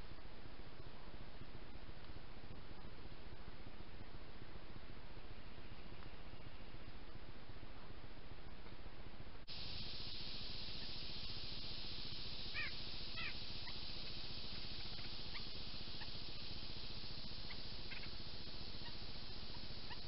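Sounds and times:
microphone hiss: 0.0s - 20.0s
bird calls: 9.6s - 20.0s.

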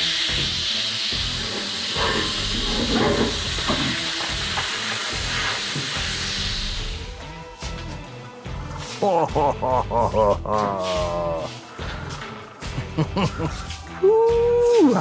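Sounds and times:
compressed air hissing: 0.0s - 7.4s.

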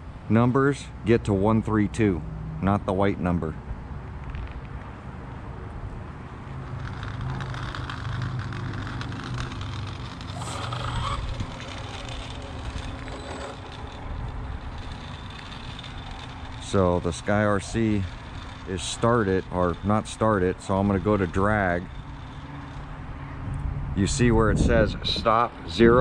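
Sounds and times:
street background noise: 0.0s - 26.0s
vehicle engine running: 5.7s - 26.0s.

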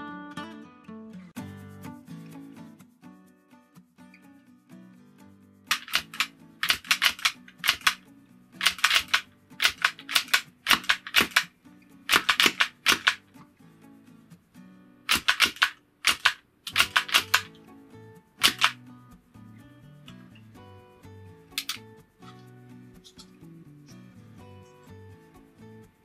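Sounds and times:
soft background music: 1.3s - 26.0s
rubber band gun wooden clacks: 5.7s - 8.0s, 8.6s - 11.5s, 12.1s - 13.2s, 15.1s - 17.5s, 18.4s - 18.8s.

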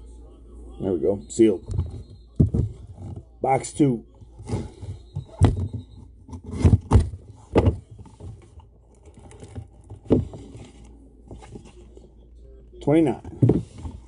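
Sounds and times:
cardboard scraping handling noise: 4.4s - 11.9s
cardboard taps and knocks: 6.4s - 8.5s.

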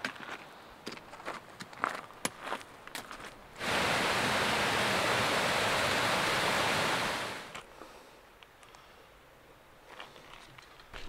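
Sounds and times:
creek water rushing: 3.6s - 7.6s.

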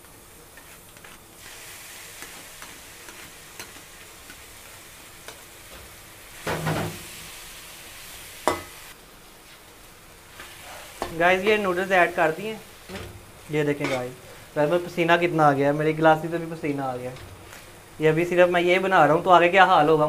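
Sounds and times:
noodles sizzling in a wok: 0.0s - 20.0s
metal spoon scraping a pan: 2.2s - 4.6s, 13.8s - 14.4s.

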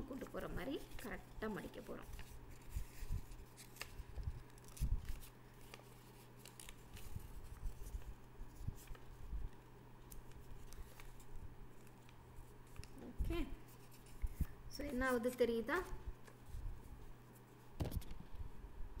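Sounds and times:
paper crinkling and rustling: 0.0s - 13.1s.

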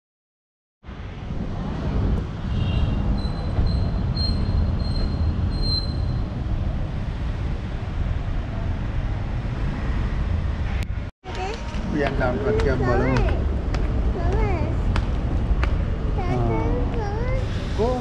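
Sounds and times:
traffic rumble: 0.8s - 18.0s
wind on microphone: 1.0s - 8.4s.

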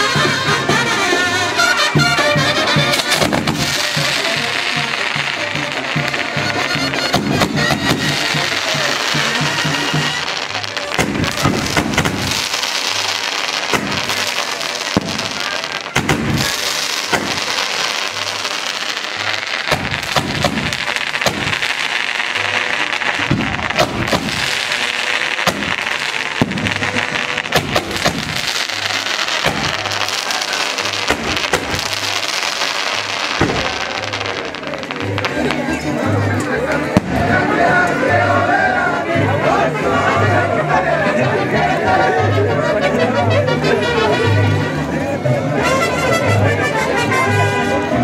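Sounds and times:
fireworks sharp bangs: 1.9s - 37.6s
fireworks fizzing hiss: 2.8s - 37.4s.

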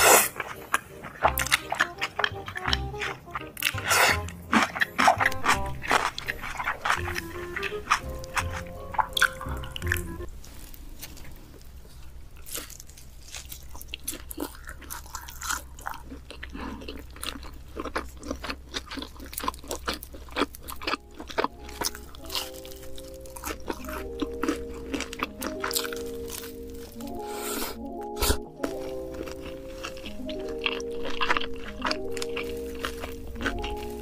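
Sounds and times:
background music: 0.0s - 10.3s, 19.4s - 34.0s
wet mouth sounds: 0.0s - 10.3s, 20.8s - 34.0s
pizza crust crunching: 0.0s - 34.0s.

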